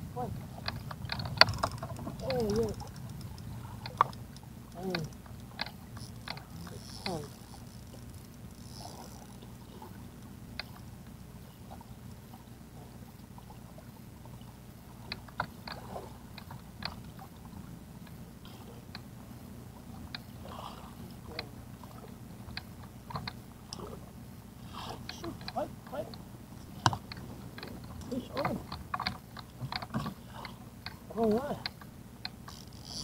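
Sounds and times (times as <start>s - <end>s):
boat motor humming: 0.0s - 33.0s
fishing reel clicks and knocks: 1.1s - 9.4s, 31.6s - 33.0s.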